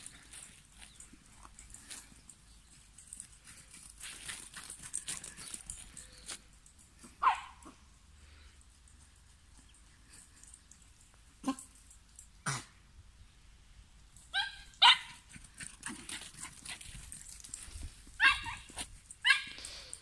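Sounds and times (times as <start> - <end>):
small dog yapping: 7.2 - 7.8, 14.3 - 16.5, 18.2 - 19.6.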